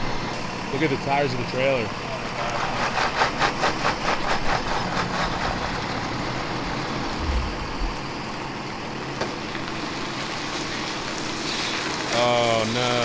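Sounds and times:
diesel truck engine rumble: 3.9 - 11.3
steady rushing noise: 6.7 - 8.5.

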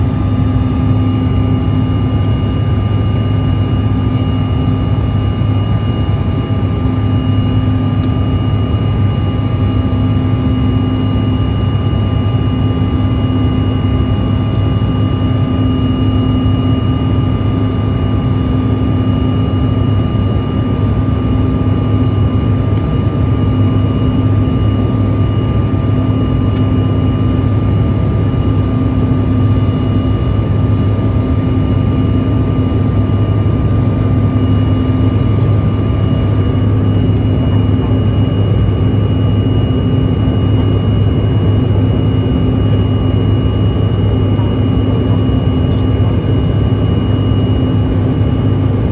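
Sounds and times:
airliner engine drone: 0.0 - 48.9.

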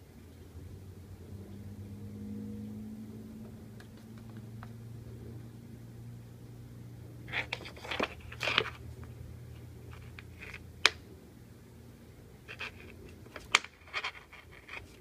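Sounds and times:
steady low hum: 0.0 - 15.0
kitten clawing at a cable: 7.3 - 9.2, 12.5 - 15.0.

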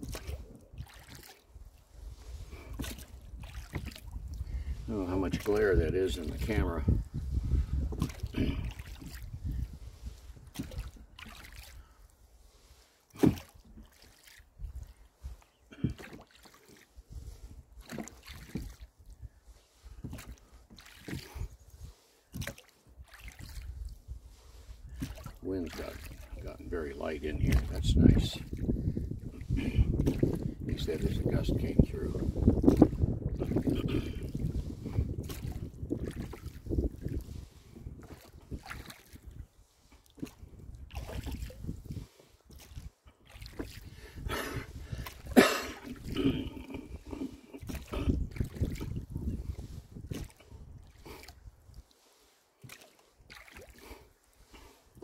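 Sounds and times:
wind rumble on microphone: 0.0 - 12.6, 14.5 - 16.0, 16.9 - 17.9, 23.0 - 51.8
oar strokes knocking and swishing: 0.0 - 55.0.

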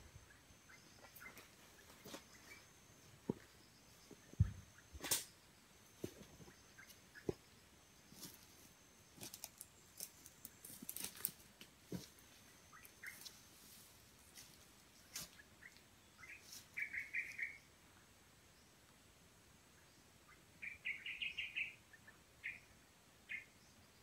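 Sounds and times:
faint high insect-like tone: 0.0 - 24.0
bird chirps: 0.2 - 8.2, 12.4 - 13.4, 15.0 - 17.7, 19.8 - 24.0.

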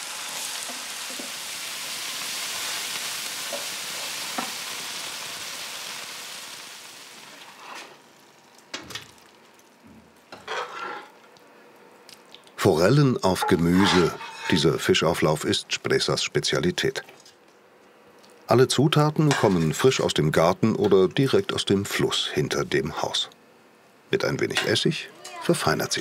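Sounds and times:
vegetables sizzling in a frying pan: 0.0 - 9.8
utensils scraping a pan: 10.4 - 11.2, 13.4 - 14.7.

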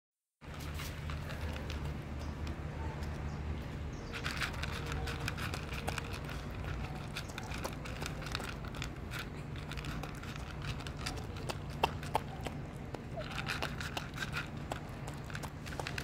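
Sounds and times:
pet crunching dry kibble: 0.4 - 16.0.

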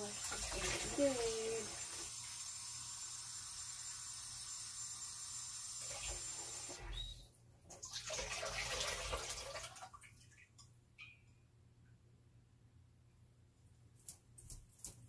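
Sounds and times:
tap water running: 0.0 - 10.4.

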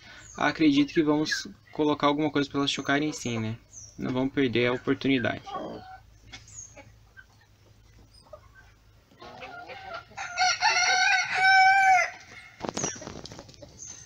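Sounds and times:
chickens clucking and chirping: 0.0 - 14.0
rooster crowing: 9.8 - 12.3.

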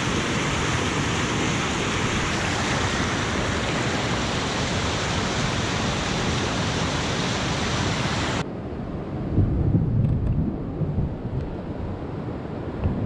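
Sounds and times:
whitewater rushing over rocks: 0.0 - 8.4
wind rumbling on microphone: 0.0 - 13.0.

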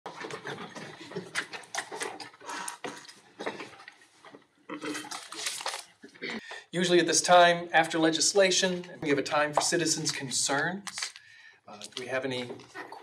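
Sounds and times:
clicks and clatter on desks: 0.1 - 4.4
paper rustling: 5.0 - 6.2.

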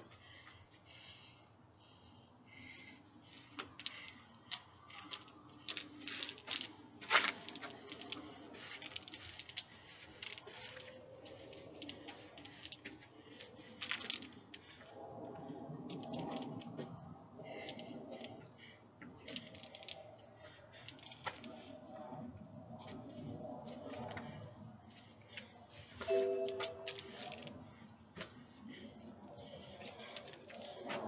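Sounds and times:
hoop rustling and tapping on body: 2.8 - 15.0, 29.2 - 31.0.

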